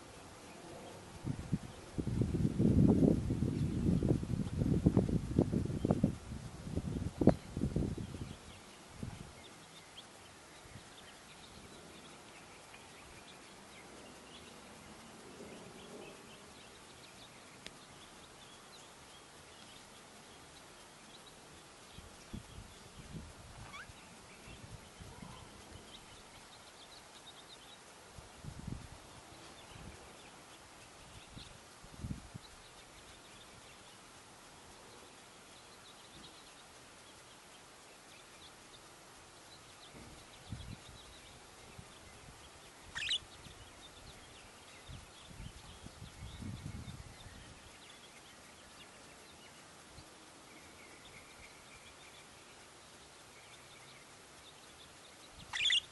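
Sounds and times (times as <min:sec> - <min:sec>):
steady background hiss: 0:00.0 - 0:55.9
budgerigars chirping: 0:23.6 - 0:24.5, 0:42.9 - 0:43.9, 0:54.7 - 0:55.9.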